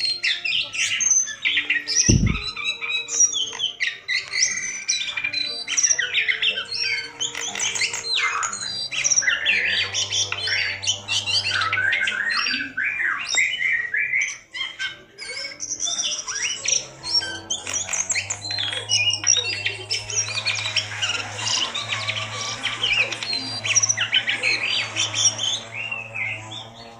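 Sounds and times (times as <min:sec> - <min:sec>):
bird singing chattering notes: 0:00.0 - 0:26.9.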